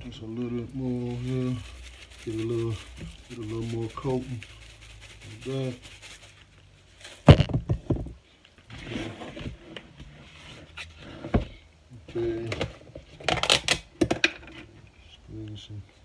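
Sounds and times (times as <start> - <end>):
rustling: 0.0 - 13.2
seasoning shaker rattling: 0.6 - 7.1.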